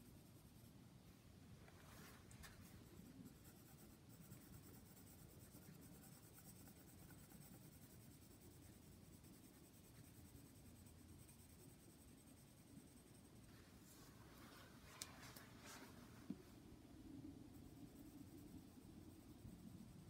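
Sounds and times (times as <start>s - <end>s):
pencil scratching on paper: 2.4s - 13.3s.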